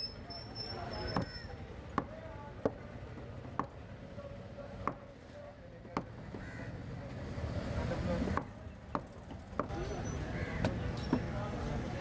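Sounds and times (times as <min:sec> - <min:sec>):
cleaver chopping fish on wood: 0:01.9 - 0:02.8, 0:04.8 - 0:05.1, 0:08.3 - 0:09.8.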